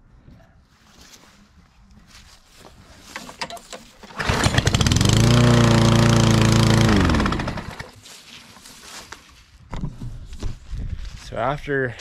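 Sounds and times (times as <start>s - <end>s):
push-mower engine running: 3.4s - 8.0s.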